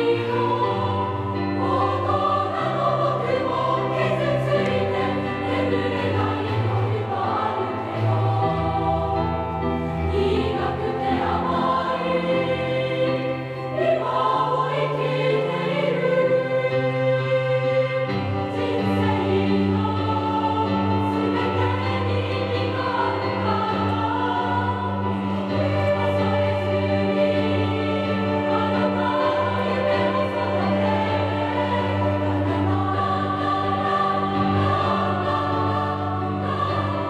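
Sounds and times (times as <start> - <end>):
choir singing: 0.0 - 37.0
keyboard accompaniment: 0.0 - 37.0.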